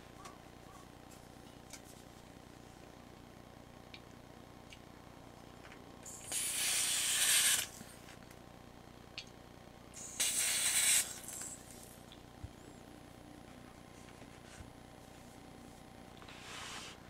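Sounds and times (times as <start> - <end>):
gas hissing: 6.0 - 7.9, 9.9 - 12.0.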